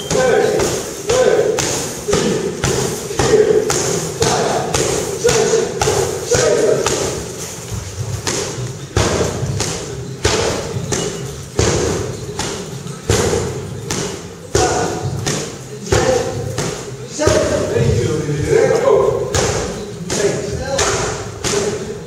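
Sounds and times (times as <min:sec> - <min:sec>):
punches thudding on heavy bags: 0:00.0 - 0:17.6.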